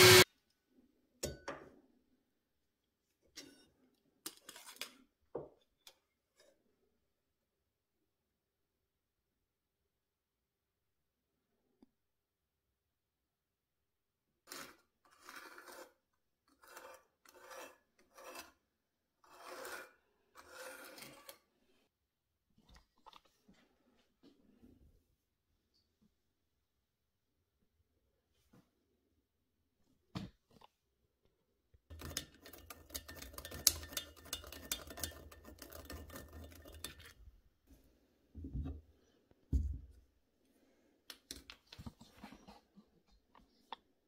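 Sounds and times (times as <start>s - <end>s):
pencil scratching on wood: 14.5s - 21.4s
pencil knocking metal: 31.9s - 37.1s.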